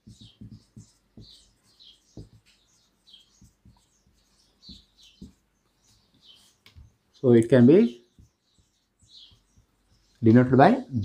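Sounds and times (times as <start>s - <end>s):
marker knocking on whiteboard: 0.0s - 5.5s, 8.1s - 10.0s
marker squeaking on whiteboard: 0.0s - 11.0s.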